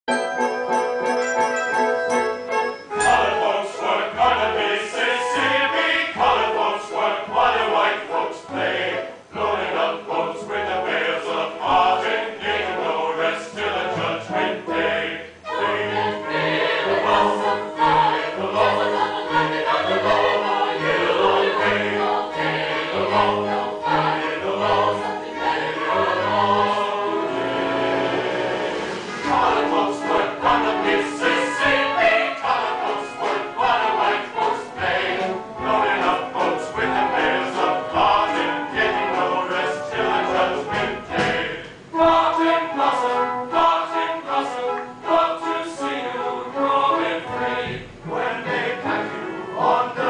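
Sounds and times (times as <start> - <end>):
orchestral accompaniment: 0.1 - 50.0
stage chorus singing: 0.1 - 50.0.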